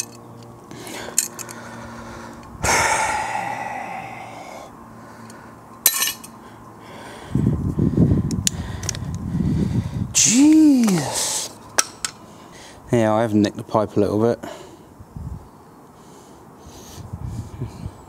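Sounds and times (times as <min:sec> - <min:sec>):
strained breathing: 0:00.7 - 0:10.2, 0:10.8 - 0:11.6, 0:12.2 - 0:12.9.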